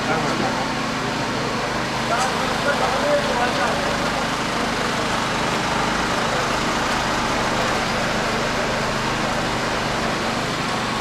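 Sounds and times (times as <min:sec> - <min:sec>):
road traffic noise: 0:00.0 - 0:11.0.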